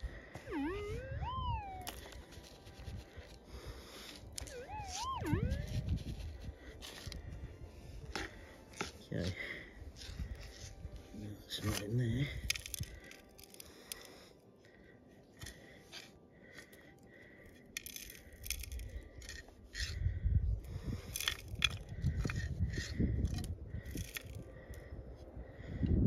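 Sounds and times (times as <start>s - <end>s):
metal detector tones: 0.4s - 3.4s, 4.1s - 6.3s
dirt and stones scraping: 1.8s - 14.1s.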